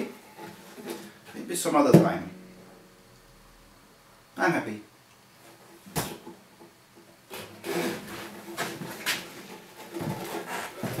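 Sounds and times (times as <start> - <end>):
guitar strings ringing faintly: 1.5 - 5.0.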